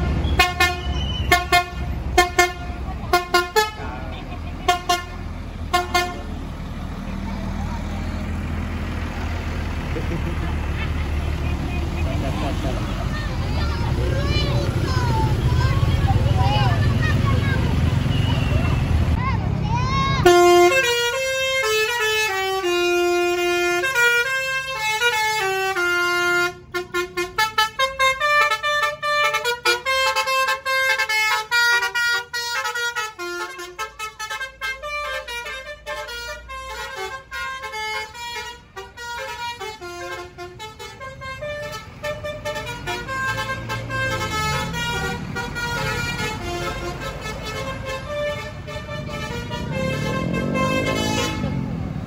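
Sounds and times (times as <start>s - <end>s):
multi-tone bus horn tune: 0.0s - 6.5s, 20.2s - 52.0s
low bus engine rumble: 0.0s - 52.0s.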